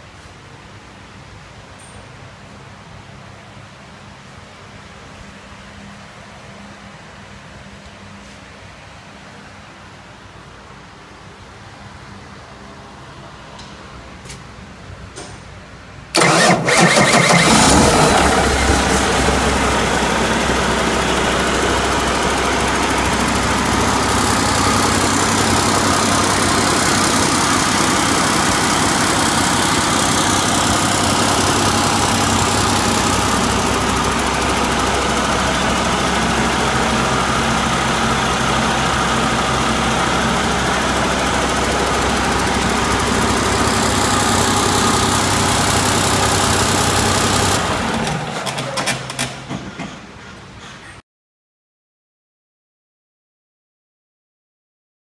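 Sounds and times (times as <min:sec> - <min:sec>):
diesel engine starting and idling: 0:16.1 - 0:50.2.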